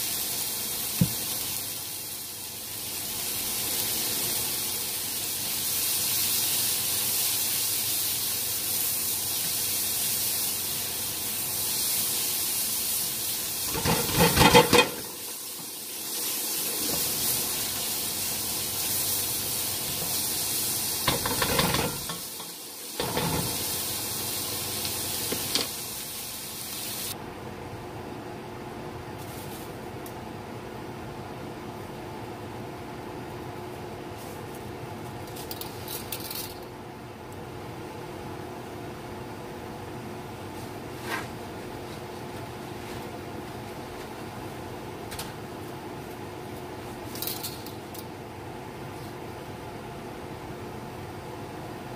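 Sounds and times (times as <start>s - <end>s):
onion sizzling in a wok: 0.0s - 27.2s.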